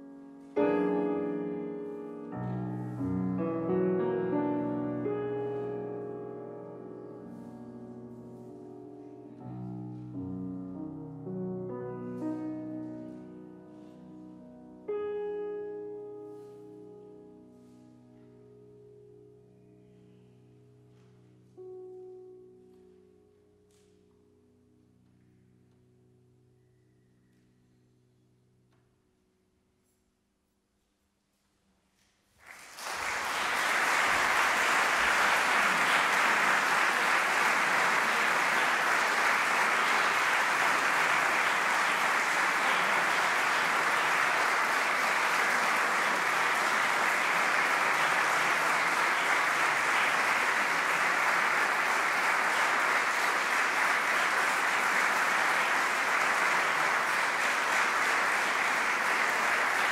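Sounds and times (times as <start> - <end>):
audience applauding: 32.4 - 59.9.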